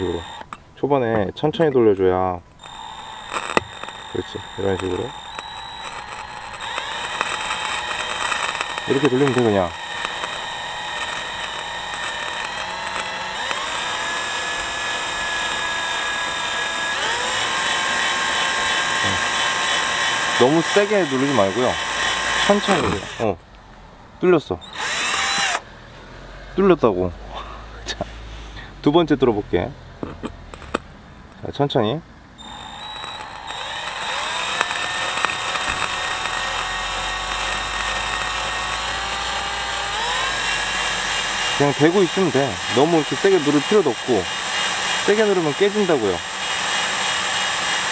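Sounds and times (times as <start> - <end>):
cordless drill whining: 0.0 - 0.6, 2.5 - 23.4, 24.6 - 25.7, 32.4 - 47.9.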